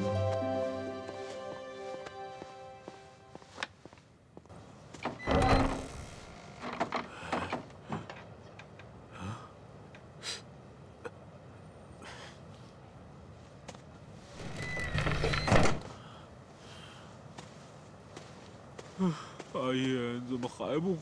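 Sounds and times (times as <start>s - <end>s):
wooden door creaking: 5.0s - 8.8s, 14.4s - 15.9s.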